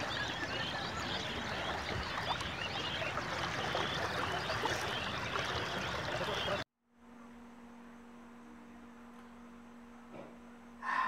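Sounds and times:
rushing water: 0.0 - 6.6.

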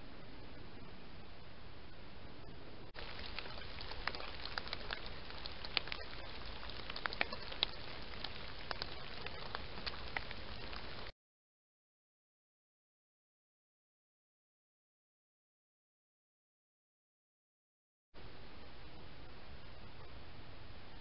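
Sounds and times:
microphone hiss: 0.0 - 11.1, 18.2 - 21.0
light crackles and ticks: 3.0 - 11.1.

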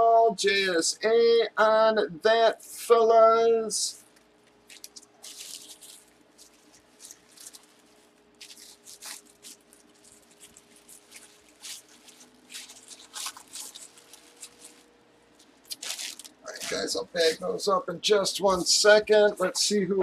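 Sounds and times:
faint steady hum: 0.0 - 20.0
plastic packaging crinkling: 3.9 - 17.5.

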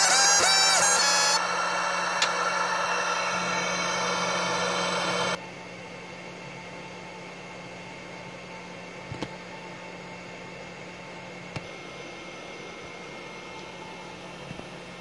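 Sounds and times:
high whining tones: 0.0 - 5.4
fan hiss and equipment hum: 0.0 - 15.0.

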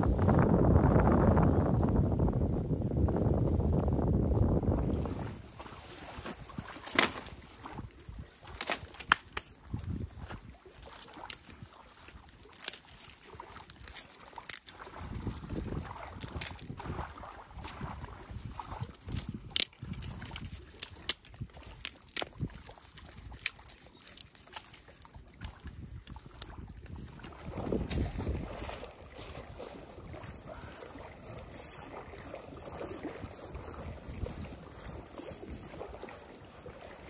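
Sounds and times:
dry twigs snapping: 6.8 - 7.4, 8.4 - 9.6, 10.7 - 17.1, 18.8 - 26.6
dry leaves rustling: 10.7 - 16.7, 18.9 - 25.0.

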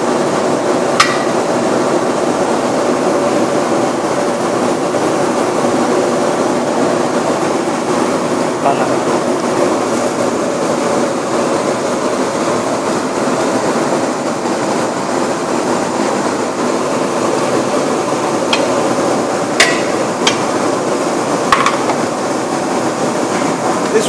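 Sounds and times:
gas stove burners roaring: 0.0 - 24.0
ladle knocking on metal pot: 1.0 - 1.4, 19.6 - 20.5, 21.5 - 22.0.

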